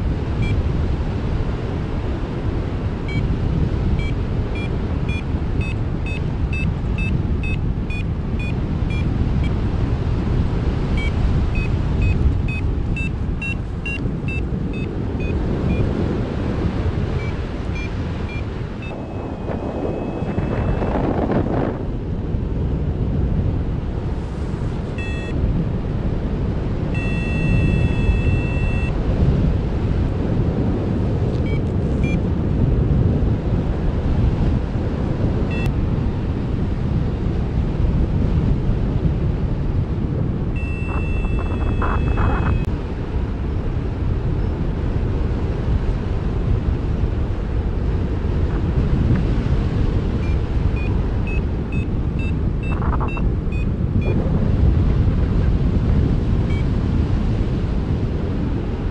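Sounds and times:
wind rushing over microphone: 0.0 - 58.9
variometer beeps: 0.4 - 0.6, 3.0 - 9.6, 10.9 - 16.0, 17.1 - 21.1, 25.0 - 25.4, 26.9 - 29.0, 31.4 - 32.2, 35.5 - 35.7, 40.6 - 42.7, 50.1 - 54.2, 56.5 - 56.7.

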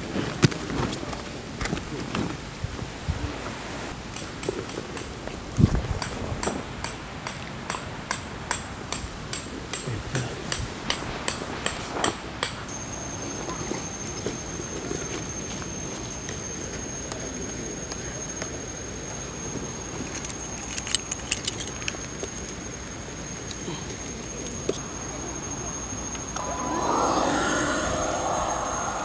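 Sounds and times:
steady high-pitched whine: 22.0 - 29.0.

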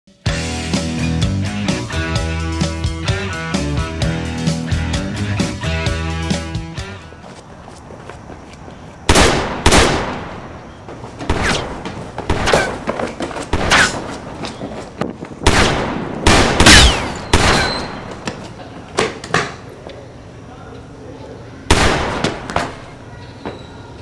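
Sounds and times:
gunshots with echoing tail: 9.1 - 10.6, 11.3 - 12.8, 13.5 - 14.1, 15.4 - 18.2, 21.7 - 22.8.

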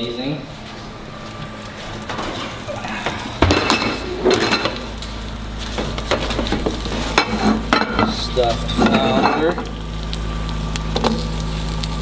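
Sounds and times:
metal baking sheet clattering: 7.2 - 9.6.

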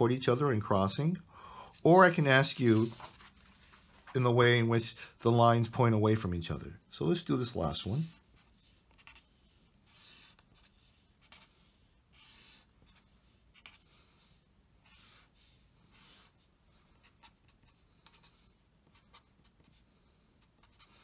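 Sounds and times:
pen scratching on paper: 8.2 - 21.0.

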